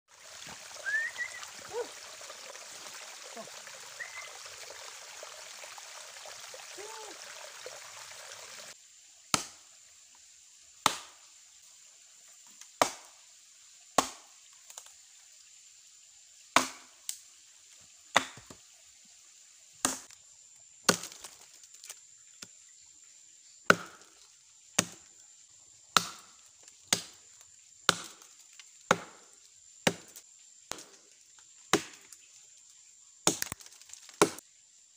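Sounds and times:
blade chopping into log: 9.3s - 9.6s, 10.8s - 11.2s, 12.8s - 13.1s, 14.0s - 14.2s, 16.6s - 16.9s, 19.8s - 20.2s, 23.7s - 24.1s, 26.0s - 26.3s, 27.9s - 28.3s, 28.9s - 29.2s, 31.7s - 32.1s, 33.2s - 34.4s.

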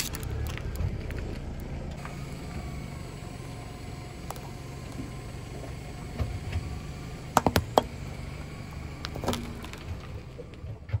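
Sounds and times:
tyre crushing chalk sticks: 0.0s - 1.7s.

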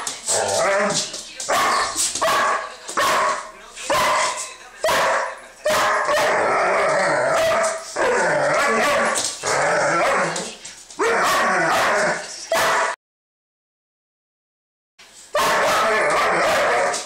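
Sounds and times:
dogs barking and yipping: 0.0s - 13.0s, 15.4s - 17.0s
dogs growling: 0.2s - 1.1s, 6.0s - 12.4s.

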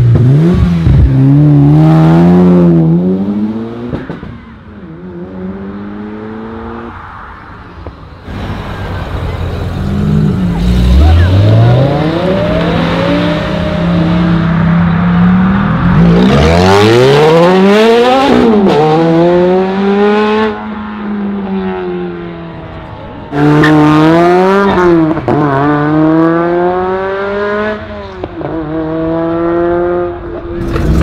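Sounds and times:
car engine accelerating hard: 8.3s - 31.0s
sports car engine revving: 23.3s - 31.0s.

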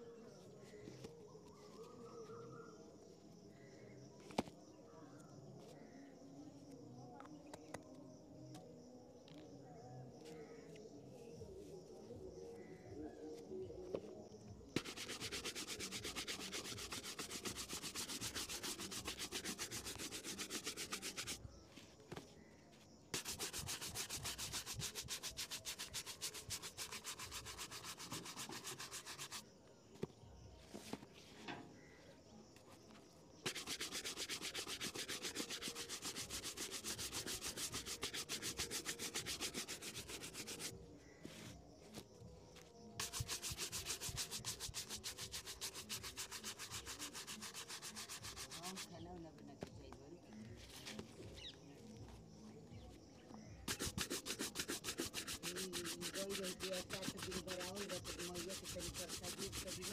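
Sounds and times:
shoe brush strokes on leather: 14.8s - 22.5s, 23.1s - 29.6s, 33.4s - 42.1s, 43.0s - 49.0s, 53.6s - 59.9s.

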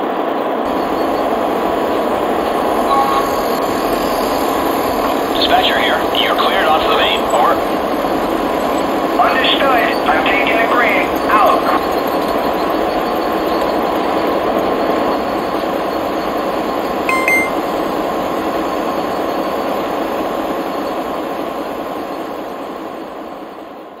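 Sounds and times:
faint steady whine: 0.7s - 15.1s
short beep: 17.1s - 17.6s.

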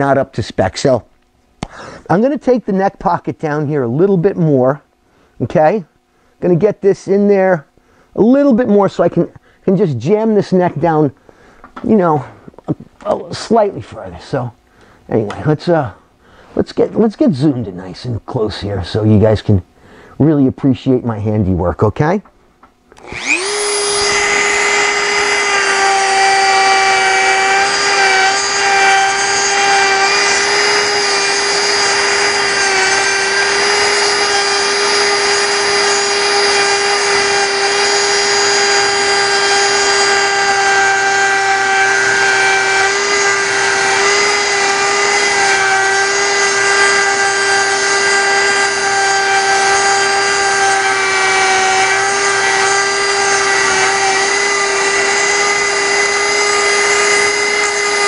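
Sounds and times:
rotary tool whining: 22.9s - 58.0s
sanding drum sanding wood: 23.2s - 58.0s.

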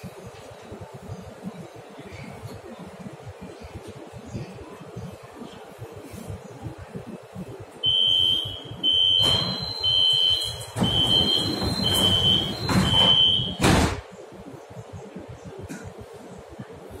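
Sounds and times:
sliding doors shutting bang: 9.0s - 14.1s.

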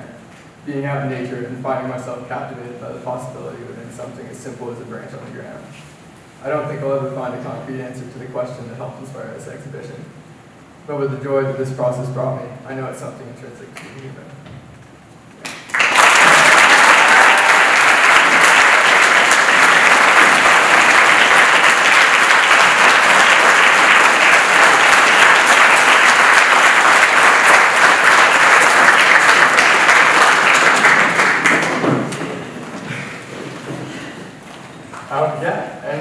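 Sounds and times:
audience applauding loudly: 15.4s - 35.1s.

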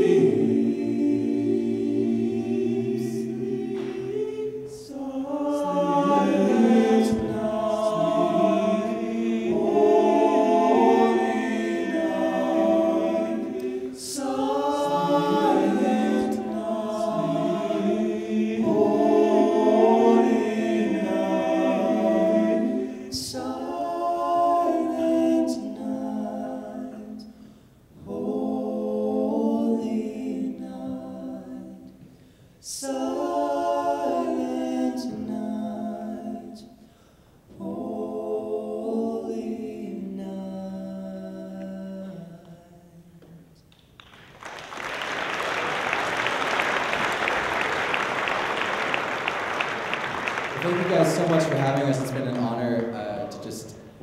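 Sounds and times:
men's a cappella harmony singing: 0.0s - 43.1s.

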